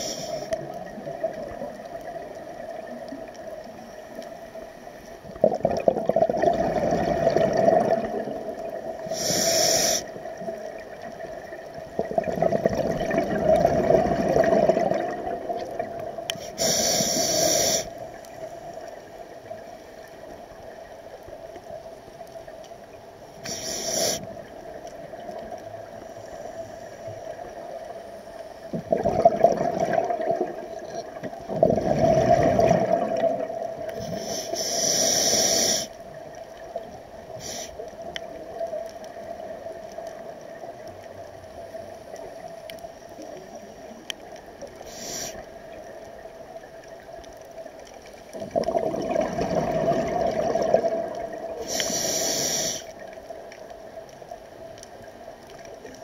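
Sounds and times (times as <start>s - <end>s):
regulator inhale hiss: 0.0s - 0.8s, 9.0s - 10.5s, 16.3s - 18.7s, 23.4s - 24.7s, 25.9s - 28.7s, 33.9s - 36.1s, 37.3s - 38.2s, 44.8s - 45.7s, 51.6s - 53.1s
exhaled bubbles rumbling: 0.6s - 3.9s, 5.2s - 9.2s, 10.2s - 16.4s, 28.6s - 34.0s, 45.6s - 51.8s.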